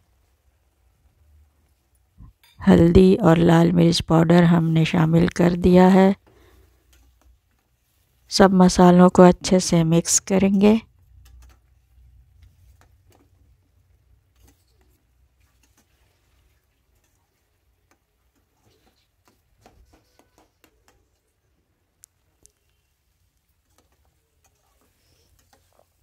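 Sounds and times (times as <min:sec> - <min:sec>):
paste frying in oil: 0:10.3 - 0:21.3, 0:22.2 - 0:26.0.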